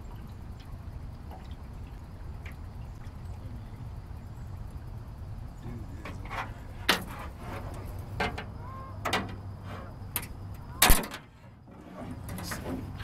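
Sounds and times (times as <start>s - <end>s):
low steady rumble: 0.0s - 13.0s.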